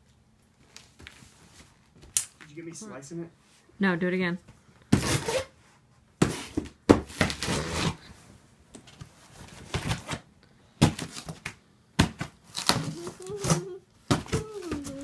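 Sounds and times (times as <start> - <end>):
knife slicing packing tape: 5.0 - 5.5, 7.2 - 8.0.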